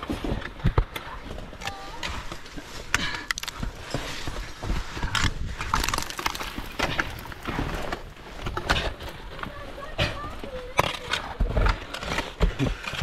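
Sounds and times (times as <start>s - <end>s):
climbing gear clinking on rock: 5.2s - 9.5s.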